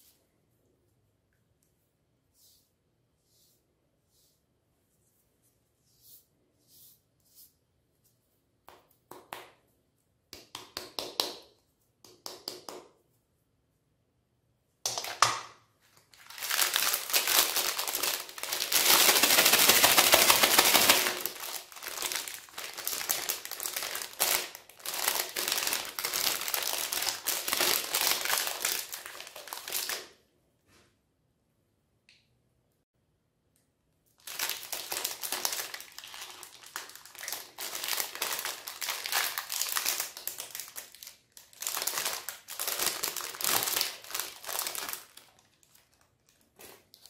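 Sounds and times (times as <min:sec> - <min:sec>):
plastic wrappers crinkling: 0:15.8 - 0:30.1, 0:34.2 - 0:47.0.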